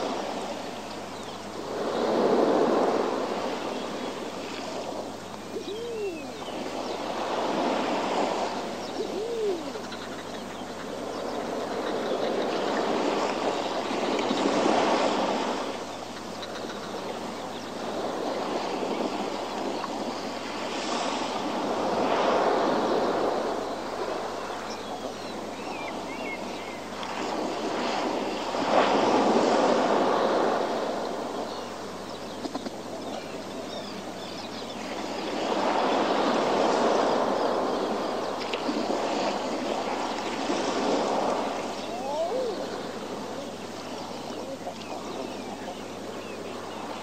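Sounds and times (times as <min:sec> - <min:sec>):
sea waves surging against rocks: 0:00.0 - 0:09.8, 0:34.8 - 0:47.0.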